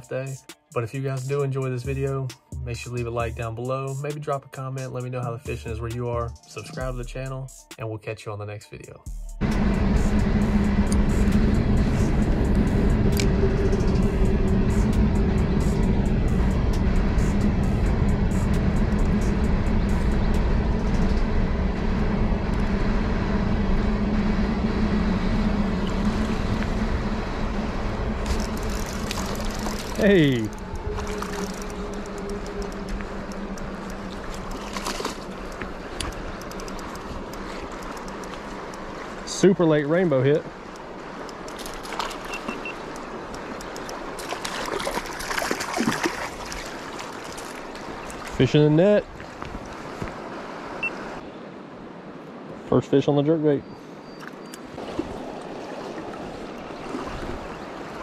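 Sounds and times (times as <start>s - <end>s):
low steady hum: 9.3s - 49.8s
creek water rushing: 9.4s - 58.0s
fish splashing at surface: 43.4s - 48.4s.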